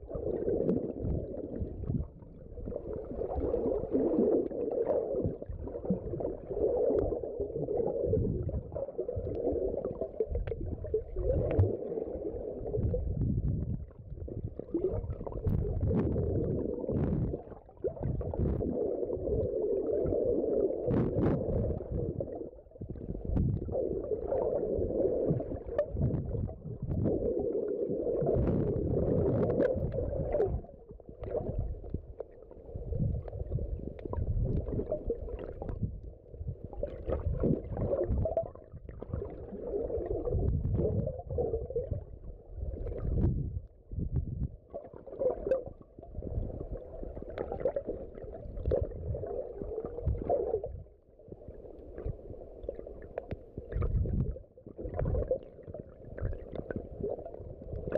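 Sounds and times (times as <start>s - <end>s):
underwater gurgle of moving water: 0.0s - 57.9s
small underwater clicks: 6.8s - 7.9s, 8.7s - 11.9s, 25.3s - 27.5s, 28.2s - 42.0s, 44.7s - 46.0s, 46.6s - 50.7s, 51.7s - 57.9s.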